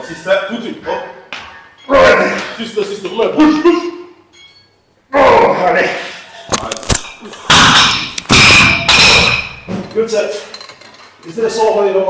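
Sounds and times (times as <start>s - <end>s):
dumbbells crashing with metallic ring: 7.5s - 10.1s.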